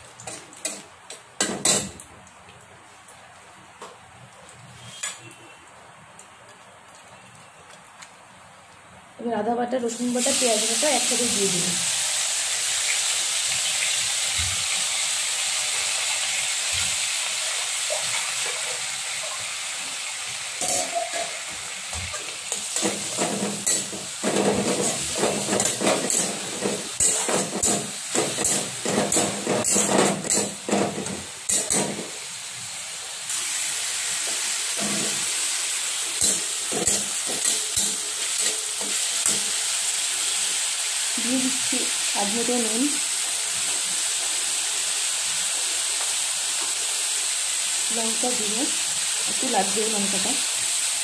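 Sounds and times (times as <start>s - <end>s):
paste sizzling in hot oil: 9.9s - 51.0s
metal spatula scraping pan: 22.6s - 31.9s.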